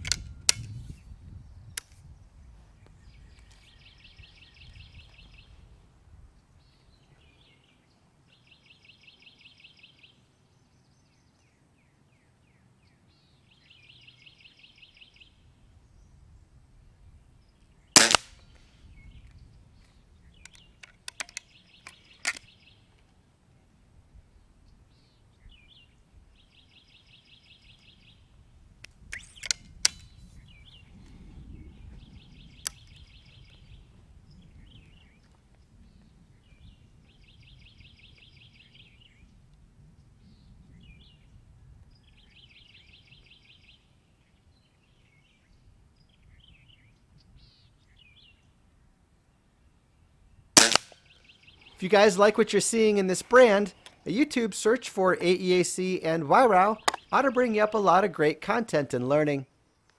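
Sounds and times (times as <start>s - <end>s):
metallic clicks of rifle handling: 0.0s - 0.8s, 19.8s - 23.2s, 28.8s - 30.1s, 50.6s - 51.0s
air rifle shot: 18.0s - 18.5s, 50.6s - 51.0s.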